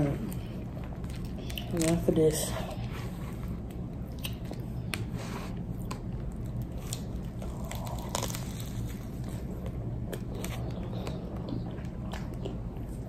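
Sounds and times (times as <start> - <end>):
person chewing food: 3.3 - 13.0
waffle crunching: 3.6 - 13.0.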